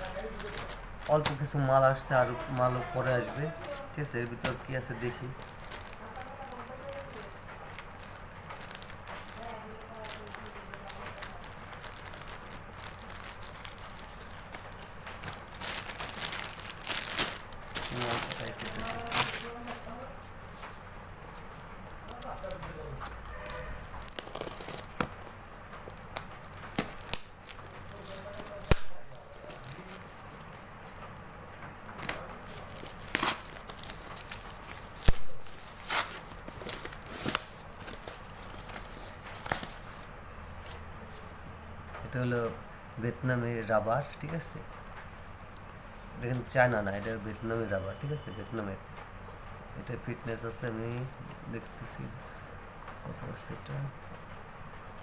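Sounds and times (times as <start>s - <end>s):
plastic bag crinkling: 0.0s - 41.3s
cardboard and tape tearing: 2.4s - 20.0s, 22.0s - 31.1s, 31.9s - 40.1s
sharp cracks: 22.1s - 29.2s
scissors snipping plastic: 27.9s - 30.0s.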